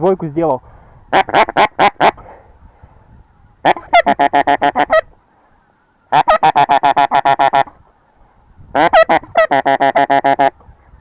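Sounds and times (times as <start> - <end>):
goose call rapid honks: 1.1 - 2.2, 3.6 - 5.1, 6.1 - 7.7, 8.7 - 10.6.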